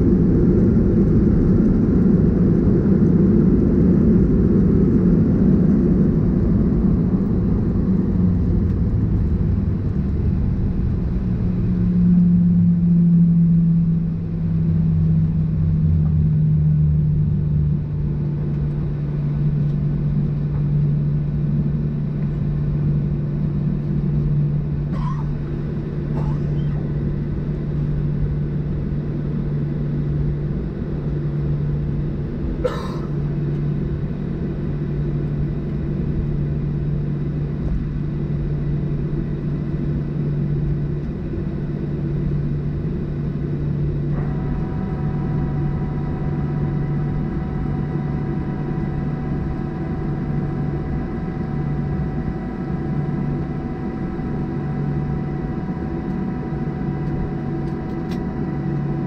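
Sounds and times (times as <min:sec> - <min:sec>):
aircraft cabin drone: 0:00.0 - 0:59.0
click: 0:57.0 - 0:58.2.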